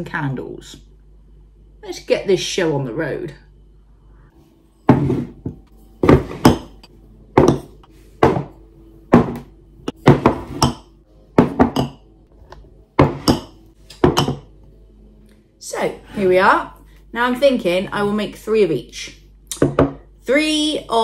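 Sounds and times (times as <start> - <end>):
glass jars clunking on wooden table: 4.8 - 9.4, 10.0 - 12.0, 13.0 - 14.5.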